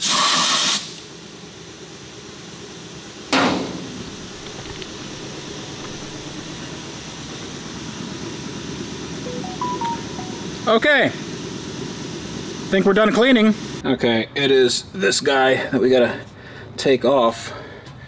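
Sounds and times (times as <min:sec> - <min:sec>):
compressed air blast: 0:00.0 - 0:01.0.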